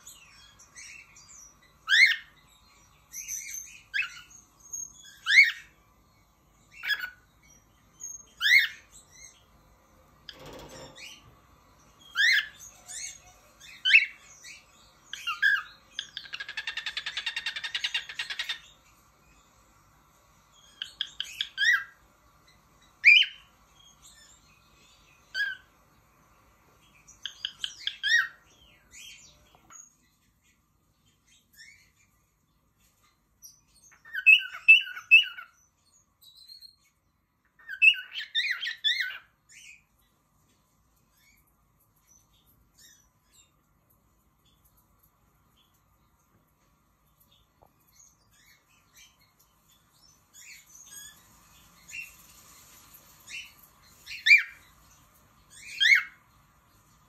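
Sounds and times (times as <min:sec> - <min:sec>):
rapid pulsed bird chatter: 0:00.0 - 0:57.0
cockatiel whistling and chirping: 0:00.4 - 0:02.3, 0:03.1 - 0:05.7, 0:06.7 - 0:07.2, 0:08.0 - 0:09.3, 0:12.1 - 0:18.7, 0:20.6 - 0:22.0, 0:23.0 - 0:23.5, 0:25.3 - 0:25.7, 0:27.2 - 0:28.4, 0:33.9 - 0:35.6, 0:37.6 - 0:39.8, 0:53.3 - 0:54.6, 0:55.5 - 0:56.2.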